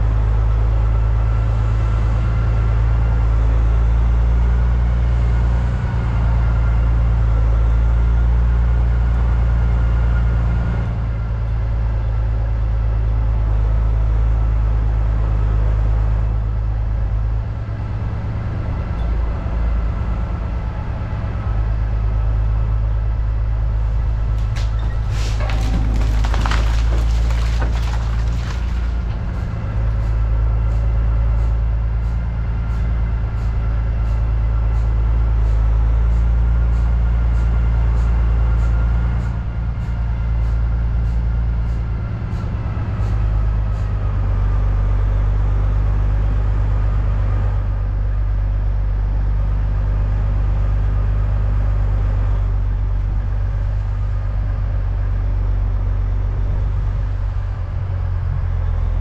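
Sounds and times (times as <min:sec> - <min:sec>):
truck engine droning: 0:00.0 - 0:59.0
knocks and rattles: 0:24.3 - 0:30.0.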